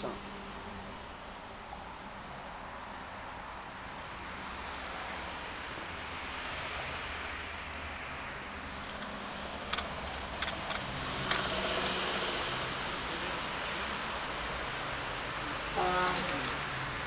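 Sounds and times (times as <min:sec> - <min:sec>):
steady outdoor hiss: 0:00.0 - 0:17.0
rushing noise: 0:03.3 - 0:17.0
sharp clicks: 0:09.7 - 0:12.0.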